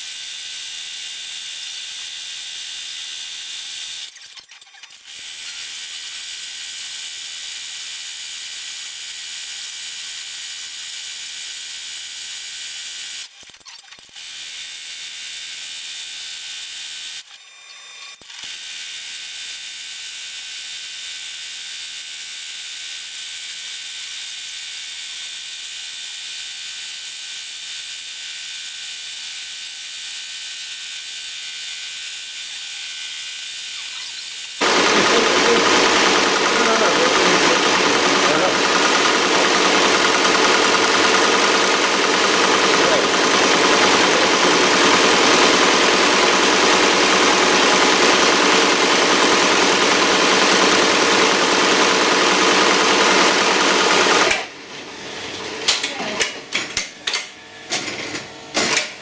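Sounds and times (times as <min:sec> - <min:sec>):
embroidery machine rattling: 0:34.6 - 0:58.9.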